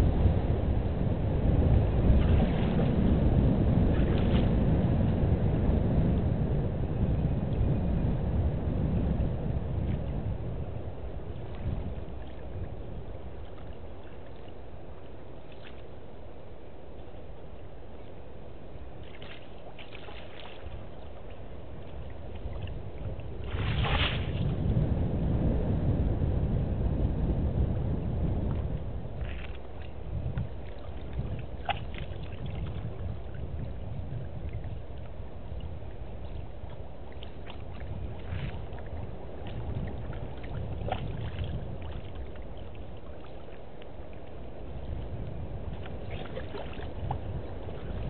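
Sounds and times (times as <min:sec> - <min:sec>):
low rumble: 0:00.0 - 0:14.4, 0:20.7 - 0:43.5
water sloshing and lapping: 0:02.0 - 0:04.8, 0:09.7 - 0:16.3, 0:17.0 - 0:24.8, 0:28.5 - 0:48.0
small drips and splashes: 0:19.0 - 0:24.5, 0:29.2 - 0:33.6, 0:36.3 - 0:48.0.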